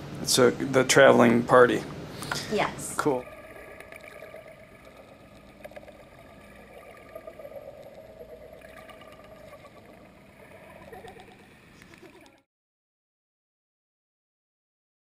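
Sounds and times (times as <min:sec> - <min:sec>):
muffled underwater hum: 0:03.0 - 0:12.5
faint crackle: 0:03.1 - 0:12.5.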